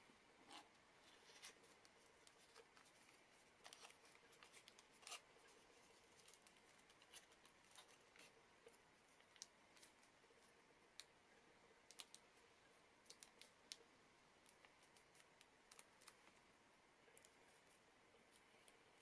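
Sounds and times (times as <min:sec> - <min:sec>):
paper crinkling and creasing: 0:00.5 - 0:10.1.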